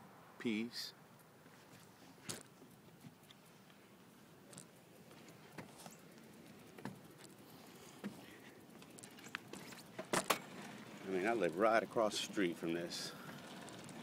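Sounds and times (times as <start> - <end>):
bicycle rolling over wooden boards: 4.5 - 14.0.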